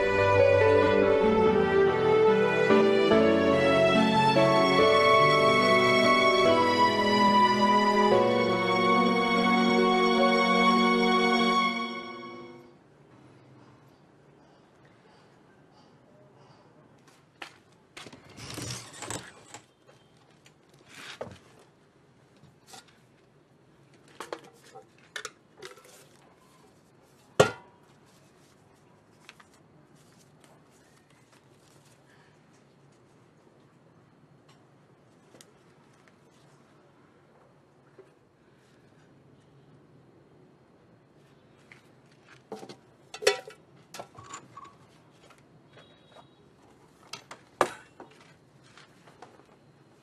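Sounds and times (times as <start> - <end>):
paper banknotes handled: 27.0 - 33.1.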